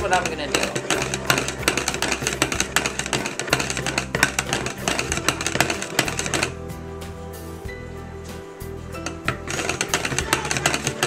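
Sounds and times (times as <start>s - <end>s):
whisk clattering against glass: 0.0s - 6.6s, 9.3s - 11.0s.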